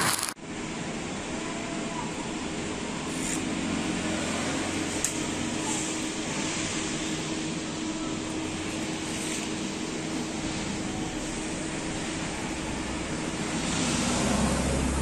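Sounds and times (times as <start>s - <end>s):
machine hiss and hum: 0.0s - 15.0s.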